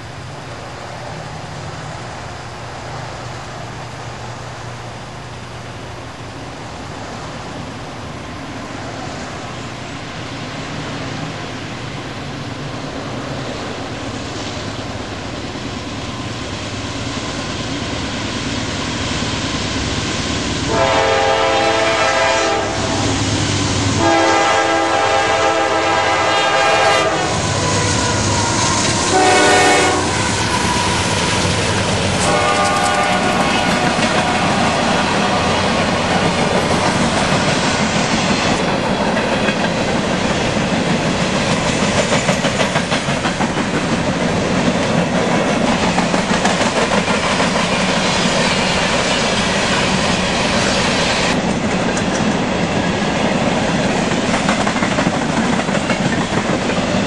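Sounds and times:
diesel locomotives rumbling: 0.0s - 57.0s
train air horn blasts: 20.7s - 23.3s, 24.0s - 31.0s, 32.2s - 35.6s.

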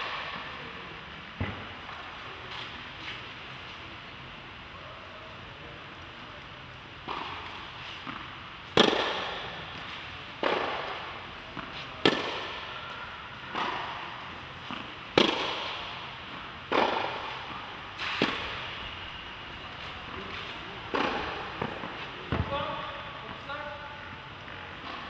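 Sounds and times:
tennis ball bouncing on clay: 7.0s - 9.5s, 10.4s - 12.6s, 14.7s - 17.6s, 20.9s - 22.5s
tennis racket hitting ball: 7.0s - 9.6s, 10.4s - 12.7s, 13.5s - 18.8s, 20.9s - 22.5s.

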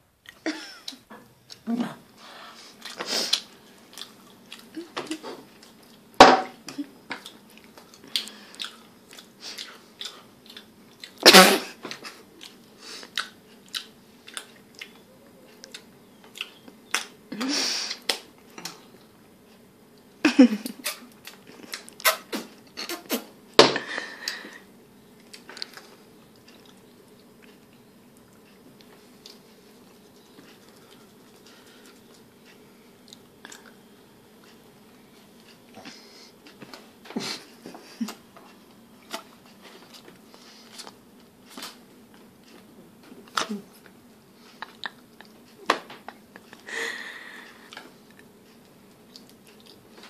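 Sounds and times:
chewing and mouth noises: 2.7s - 6.1s, 6.7s - 11.2s, 11.9s - 17.1s, 25.2s - 32.3s, 33.0s - 34.6s, 47.7s - 50.0s.

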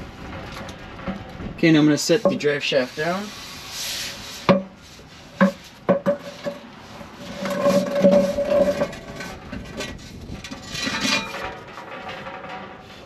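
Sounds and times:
metal scraping ring: 5.4s - 13.0s
metal shaft clanking on ground: 7.3s - 13.0s.

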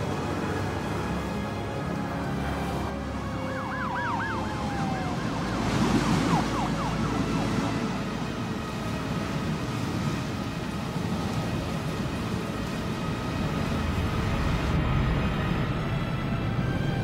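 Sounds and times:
siren yelping: 3.4s - 7.7s.

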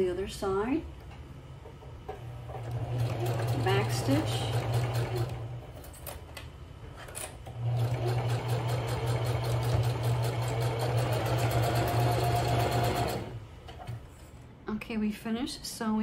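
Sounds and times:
sewing machine stitching: 2.5s - 5.6s, 7.5s - 13.4s.

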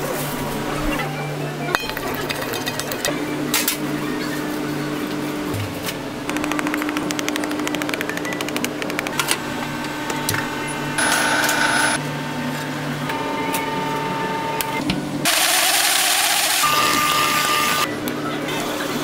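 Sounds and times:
machine humming: 4.9s - 17.9s
fast mechanical clicking: 6.3s - 9.2s.

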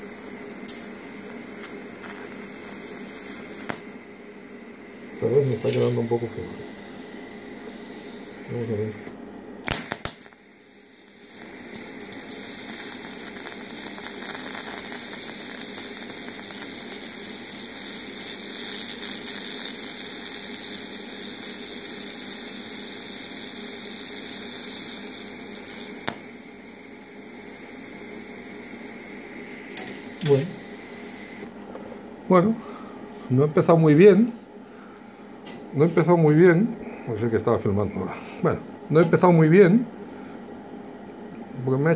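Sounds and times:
welding arc hissing: 0.0s - 31.5s.

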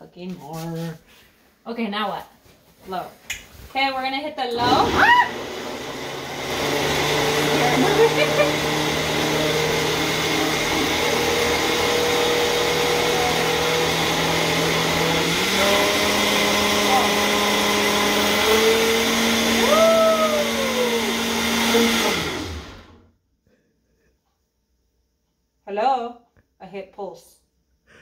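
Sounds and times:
blender motor humming: 4.6s - 23.0s.

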